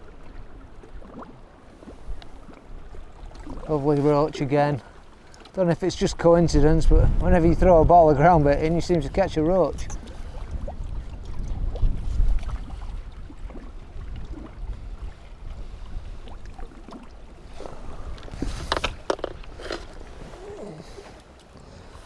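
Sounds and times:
water lapping: 0.0 - 22.0
wind rumbling on microphone: 5.9 - 21.0.

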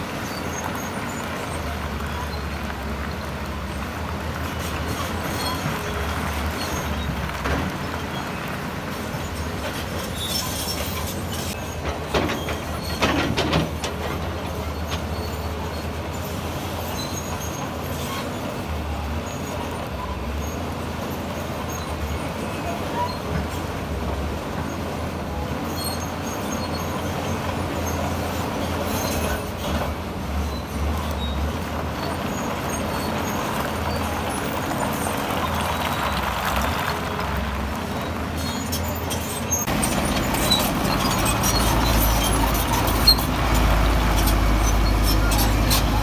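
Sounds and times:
loud clanks and knocks: 11.7 - 15.1
diesel engine running: 26.6 - 46.0.

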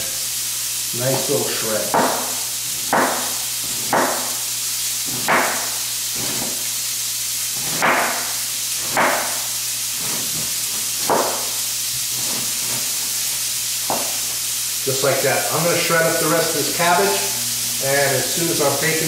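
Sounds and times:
bacon frying in a pan: 0.0 - 19.0
knife chopping cabbage on a board: 1.9 - 4.4, 5.1 - 6.6, 7.6 - 9.4, 10.2 - 11.5.

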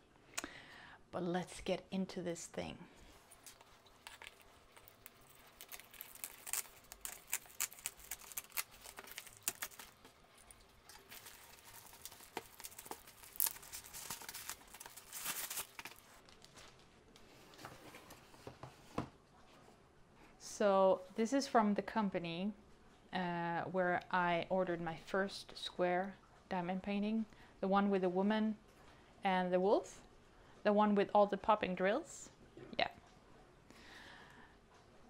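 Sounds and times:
plastic shrink wrap crinkling: 3.0 - 17.3
plastic wrap ripping: 3.4 - 16.8.

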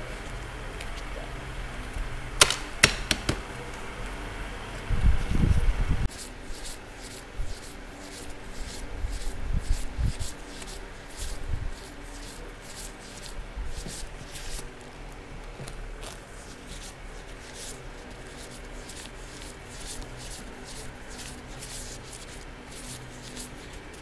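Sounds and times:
banknotes being counted by hand: 2.4 - 3.5, 16.1 - 24.0.

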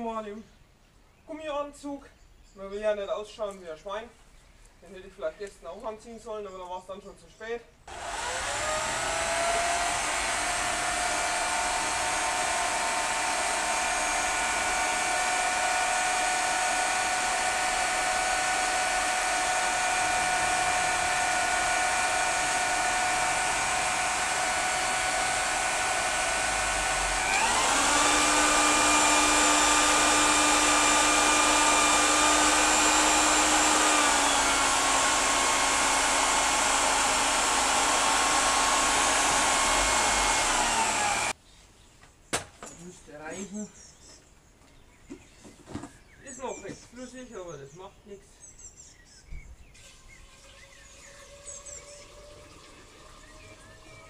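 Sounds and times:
electric drill motor whine: 7.9 - 41.4, 50.9 - 54.0.

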